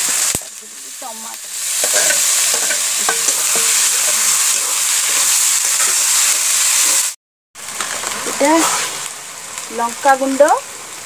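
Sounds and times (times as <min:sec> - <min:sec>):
masala sizzling in hot oil: 0:00.0 - 0:11.0
metal ladle scraping pan: 0:01.5 - 0:06.3.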